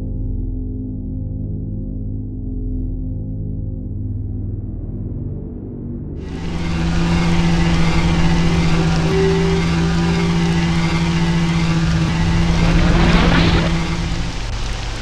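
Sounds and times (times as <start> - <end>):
rumbling drone with low hum: 0.0 - 15.0
rising whoosh: 6.2 - 15.0.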